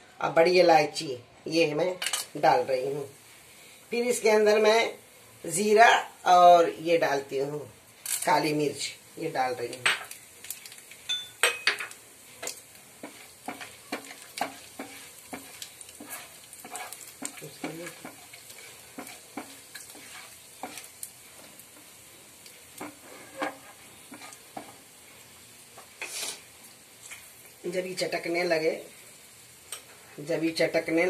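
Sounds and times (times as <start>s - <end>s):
spices sizzling in oil: 0.2s - 31.0s
seeds popping and crackling: 9.6s - 24.8s.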